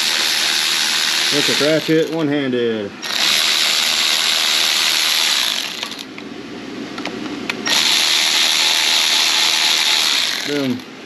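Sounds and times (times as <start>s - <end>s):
electric ratchet spinning: 0.0s - 2.1s, 3.0s - 6.1s, 7.6s - 10.8s.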